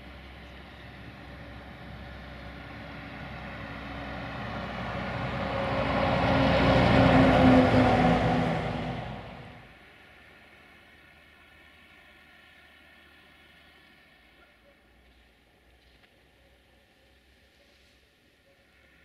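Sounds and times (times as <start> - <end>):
car passing by: 0.0 - 9.8.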